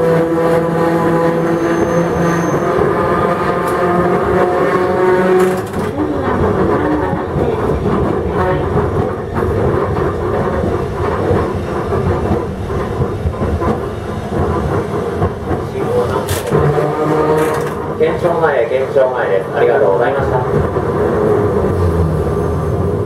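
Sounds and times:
tram motors whining: 0.0 - 23.0
wheels rumbling on track: 0.0 - 23.0
wheels clacking over rail joints: 3.4 - 18.4.

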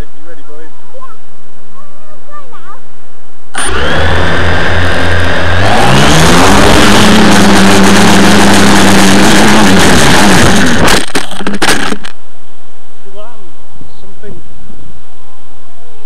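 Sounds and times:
drone crashing with clatter: 3.6 - 12.2
drone motors whining: 3.6 - 12.2.

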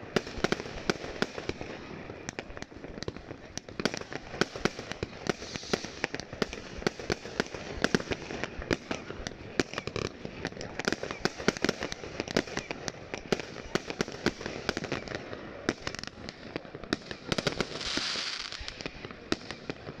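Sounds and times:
fireworks bangs and crackles: 0.0 - 20.0
fireworks hiss: 4.3 - 10.4, 17.3 - 19.7.

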